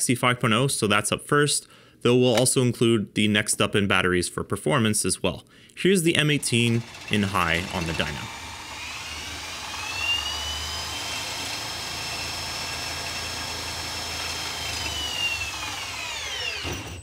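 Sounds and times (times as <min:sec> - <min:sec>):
drill motor whine: 0:06.4 - 0:17.0.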